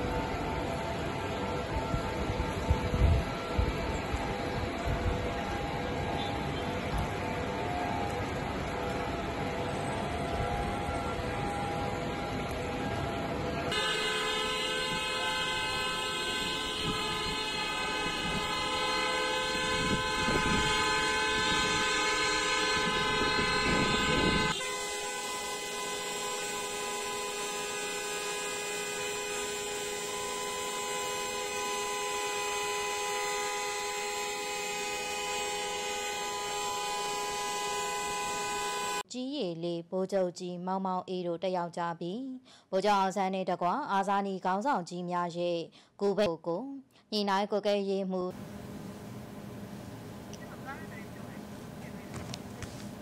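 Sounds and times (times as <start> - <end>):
many vehicle horns honking: 2.7 - 7.4, 10.1 - 39.0.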